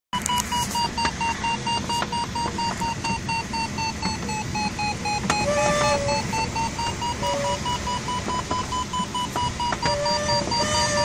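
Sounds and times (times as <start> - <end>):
variometer beeping rapidly: 0.2 - 11.0.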